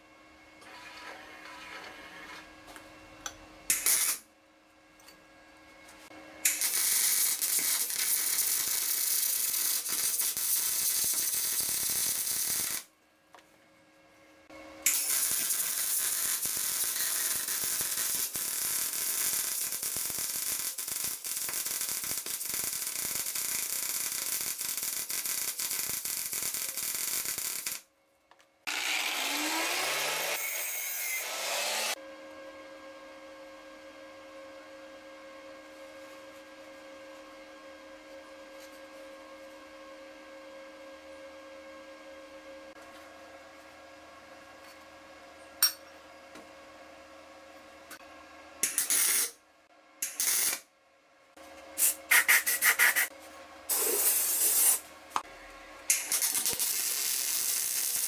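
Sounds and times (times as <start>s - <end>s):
welding arc crackling and sizzling: 3.7s - 4.2s, 6.4s - 12.9s, 14.8s - 27.9s, 28.7s - 32.0s, 48.6s - 49.4s, 50.0s - 50.7s, 51.8s - 54.9s, 55.9s - 58.0s.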